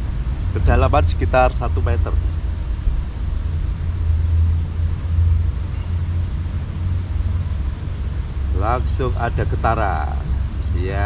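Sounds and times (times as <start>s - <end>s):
steady low rumble: 0.0s - 11.0s
high chirps: 8.1s - 9.4s.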